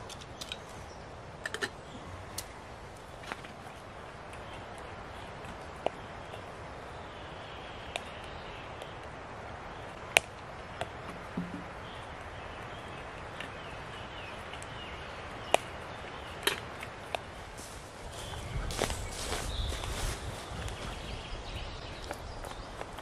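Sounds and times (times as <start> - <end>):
fire crackling pops: 10.0 - 12.3
wood fire hissing: 16.9 - 20.8.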